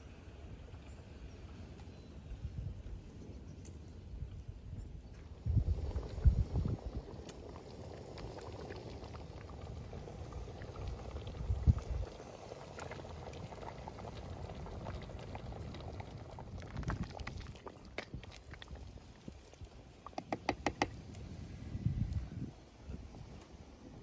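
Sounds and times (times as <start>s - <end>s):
stew bubbling with small pops: 5.0s - 24.0s.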